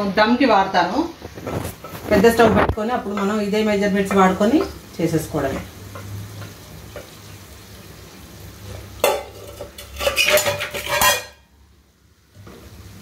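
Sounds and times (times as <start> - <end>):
metal spoon scraping steel pot: 9.3 - 11.4.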